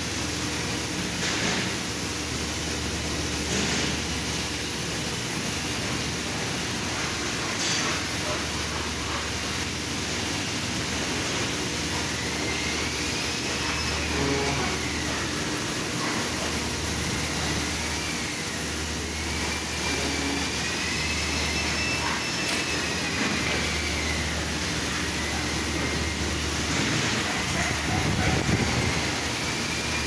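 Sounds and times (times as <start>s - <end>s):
industrial machinery hum: 0.0s - 30.0s
faint wavering whine: 8.2s - 30.0s.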